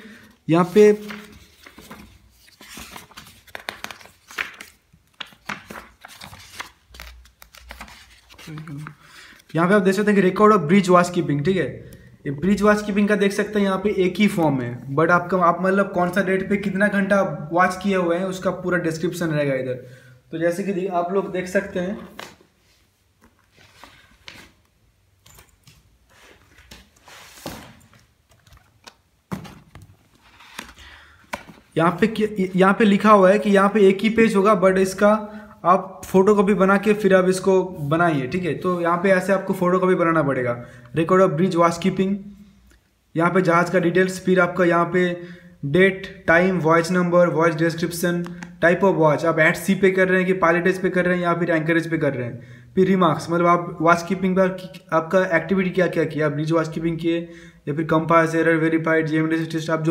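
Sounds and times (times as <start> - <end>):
paper pages rustling: 0.6 - 9.6, 22.0 - 32.2.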